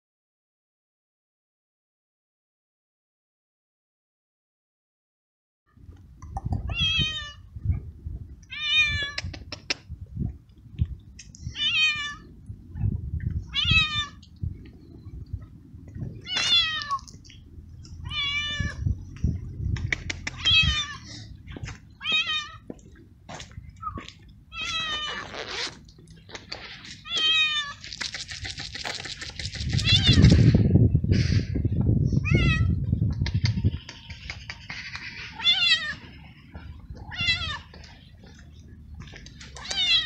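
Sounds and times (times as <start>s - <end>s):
cat meowing loudly: 6.7s - 7.5s, 8.5s - 9.3s, 11.5s - 12.3s, 13.5s - 14.3s, 16.2s - 17.2s, 18.0s - 18.9s, 20.3s - 21.0s, 22.0s - 22.7s, 24.5s - 25.8s, 27.0s - 27.9s, 29.7s - 30.6s, 32.2s - 32.8s, 35.4s - 36.0s, 37.1s - 37.7s, 39.6s - 40.0s.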